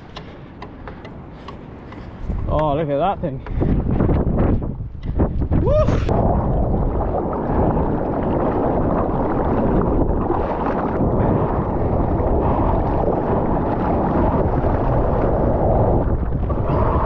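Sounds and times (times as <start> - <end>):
wind buffeting microphone: 0.0 - 17.0
water rushing and splashing: 5.8 - 17.0.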